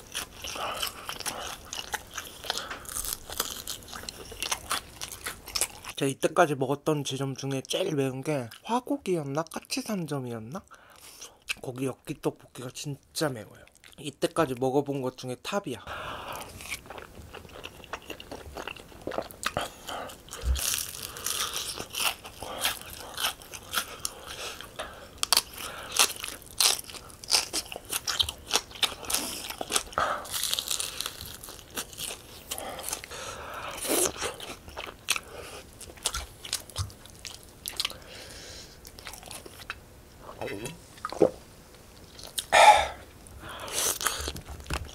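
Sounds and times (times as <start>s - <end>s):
chewing: 0.0s - 6.0s, 13.6s - 14.0s, 16.2s - 38.2s, 38.8s - 39.8s, 42.0s - 42.6s
crunching bites of fried chicken: 0.0s - 6.0s, 16.3s - 33.1s.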